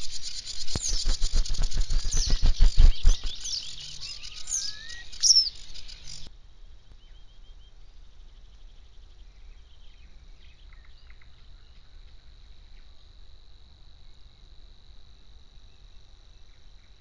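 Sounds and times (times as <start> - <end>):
high-pitched buzzing reel: 0.0 - 6.3
short bird chirps: 0.0 - 6.3
faint low rumble: 0.3 - 12.9.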